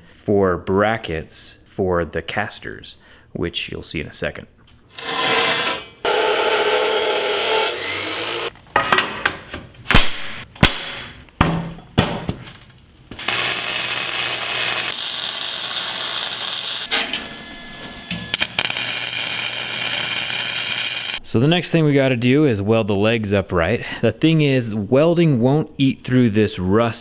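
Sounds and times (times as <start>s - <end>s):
chop saw cutting steel: 4.9s - 8.5s
arc welding crackle: 13.2s - 16.9s, 18.3s - 21.2s.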